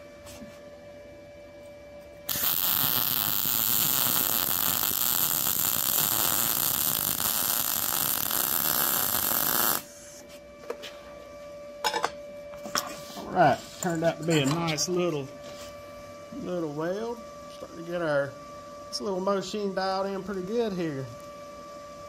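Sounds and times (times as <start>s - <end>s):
welding arc crackle: 2.3s - 9.9s.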